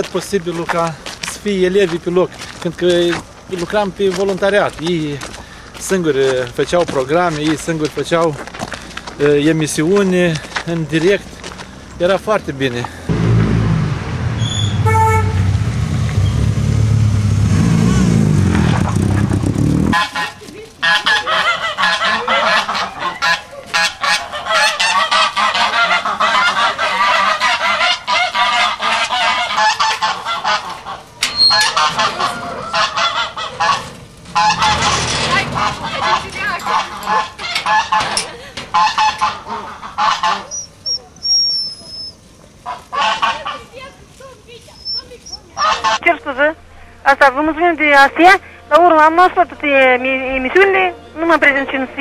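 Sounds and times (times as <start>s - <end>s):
low rumble: 13.1s - 19.9s, 33.4s - 36.4s
geese honking: 14.4s - 15.6s, 19.9s - 44.0s, 44.7s - 52.0s.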